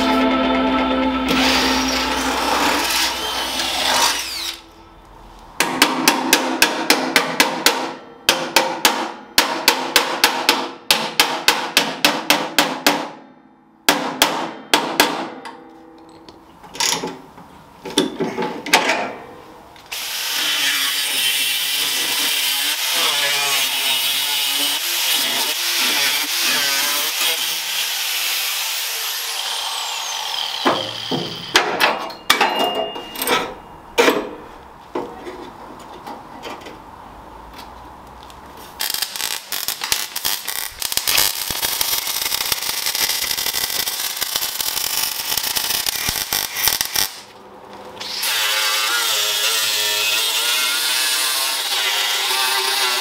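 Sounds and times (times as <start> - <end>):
angle grinder grinding steel: 0.0 - 4.8, 20.0 - 31.5
cordless drill in sheet steel: 1.3 - 4.7, 19.9 - 31.5.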